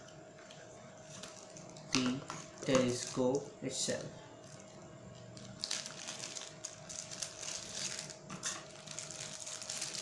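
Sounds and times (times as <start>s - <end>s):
plastic sleeve crinkling: 1.1s - 3.5s, 4.4s - 10.0s.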